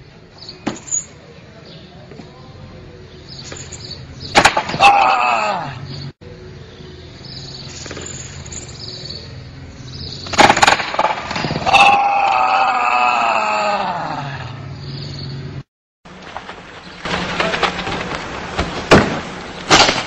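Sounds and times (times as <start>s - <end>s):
man yelling: 4.8s - 5.9s.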